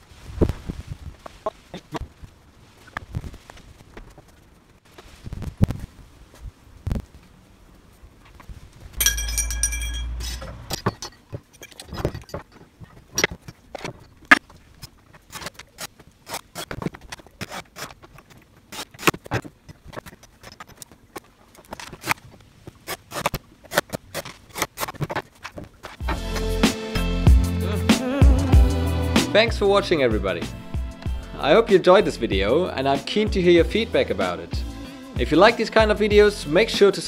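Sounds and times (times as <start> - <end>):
metallic clinks and knocks: 9.0 - 14.2.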